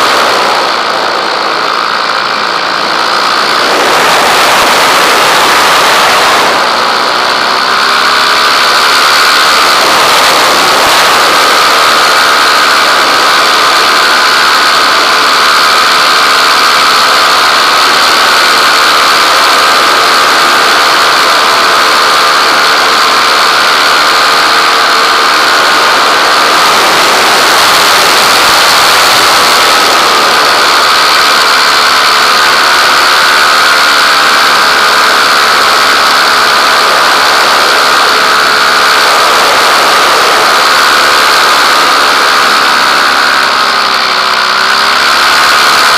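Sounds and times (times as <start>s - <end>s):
small aircraft engine droning: 0.0s - 45.9s.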